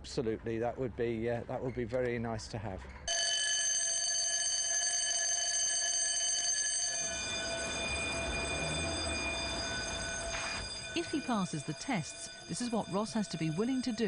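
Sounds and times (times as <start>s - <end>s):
electric fire bell ringing: 3.1s - 14.0s.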